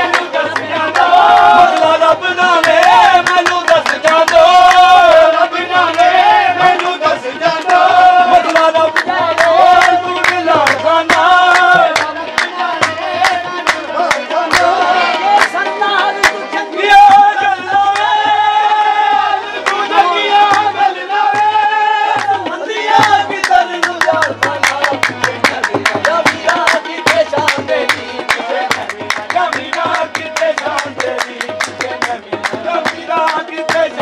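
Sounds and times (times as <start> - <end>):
harmoniums: 0.0 - 34.0
male voices singing: 0.0 - 34.0
sharp percussion strikes: 19.1 - 34.0.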